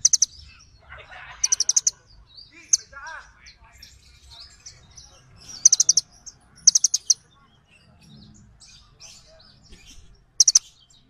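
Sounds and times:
bird chipping calls: 0.0s - 11.0s
faint bird twittering: 0.0s - 11.0s.

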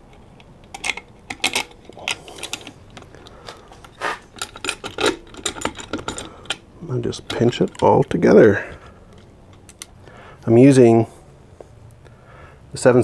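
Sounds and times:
metallic clinks of hardware: 0.6s - 3.0s, 4.3s - 8.3s.

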